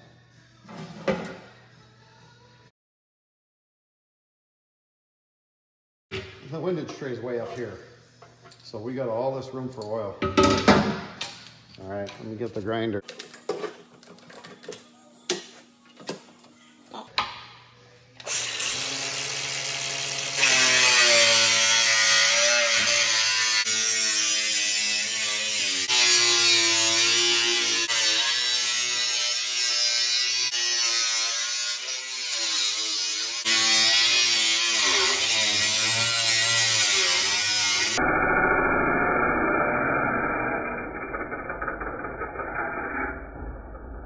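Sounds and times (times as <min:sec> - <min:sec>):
angle grinder cutting steel: 0:18.2 - 0:44.0.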